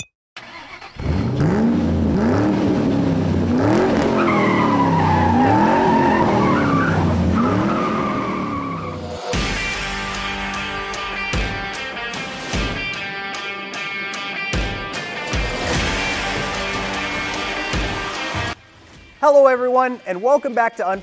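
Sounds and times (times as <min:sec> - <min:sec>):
car engine revving: 0:00.4 - 0:09.4
tyres squealing: 0:04.2 - 0:09.0
guitar music: 0:09.4 - 0:19.2.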